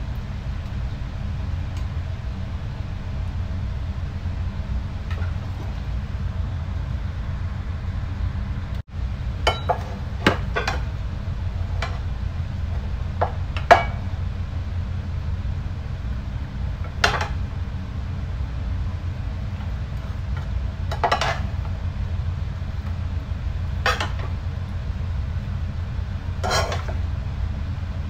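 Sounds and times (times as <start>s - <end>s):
steady low hum: 0.0s - 28.0s
metal spoon clinking on dishes: 9.5s - 9.9s.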